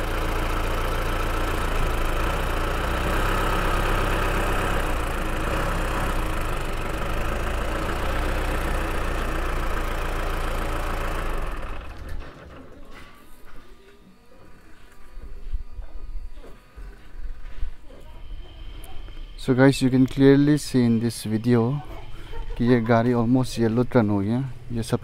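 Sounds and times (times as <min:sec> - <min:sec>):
diesel engine idling: 0:00.0 - 0:12.6, 0:18.2 - 0:25.0.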